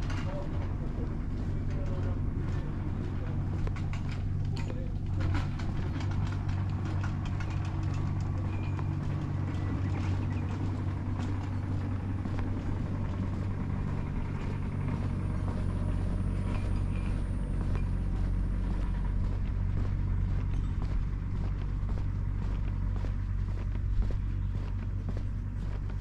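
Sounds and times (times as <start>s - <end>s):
low motor hum: 0.0s - 26.0s.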